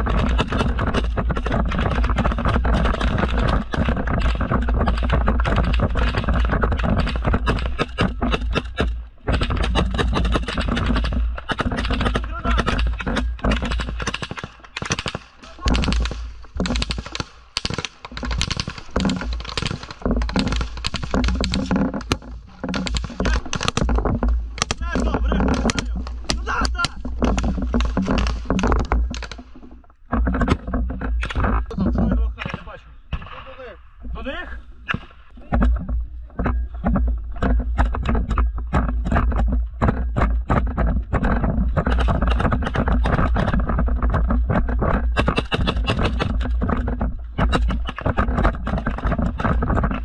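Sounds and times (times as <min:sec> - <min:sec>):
rifle fire cracks: 0:13.5 - 0:21.6.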